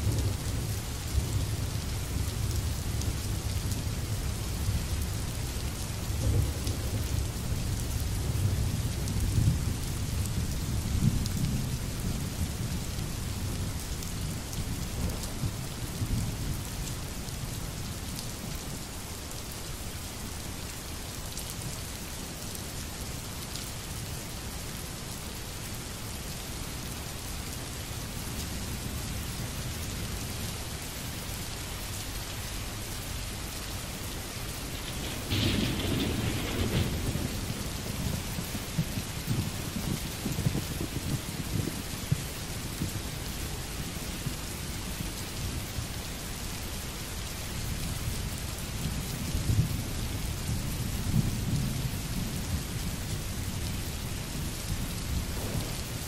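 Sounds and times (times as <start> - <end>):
steady rain falling: 0.0 - 56.0
low rolling thunder: 34.6 - 43.0, 49.4 - 56.0.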